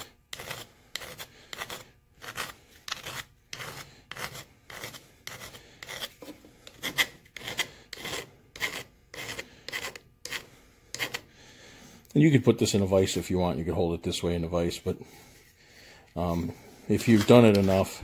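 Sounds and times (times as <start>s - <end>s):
hand file rasping on sheet metal: 0.0s - 11.3s.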